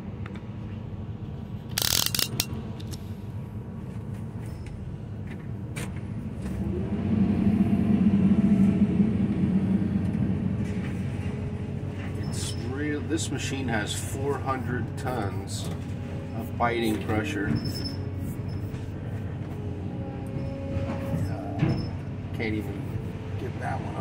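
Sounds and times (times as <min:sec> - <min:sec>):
excavator diesel engine: 0:00.0 - 0:24.0
hydraulic shear closing on steel: 0:01.7 - 0:02.6.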